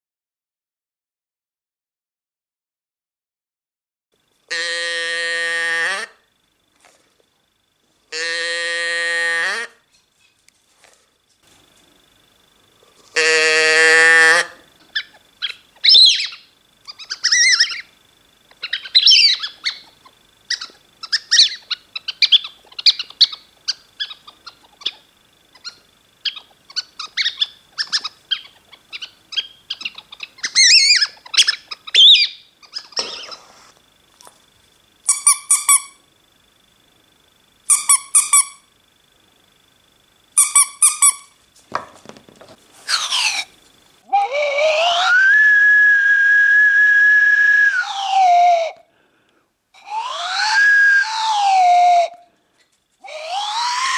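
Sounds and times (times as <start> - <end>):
buzzy noise maker call: 4.4 - 6.3, 8.1 - 9.9, 12.2 - 33.8, 35.0 - 39.3, 40.2 - 41.4, 42.7 - 52.4
toy bird-like chirps: 14.9 - 17.9, 18.6 - 33.4, 35.1 - 36.0, 37.7 - 38.6, 40.4 - 41.4
squeeze toy squeaks: 35.1 - 36.0, 37.7 - 38.6, 40.4 - 41.3.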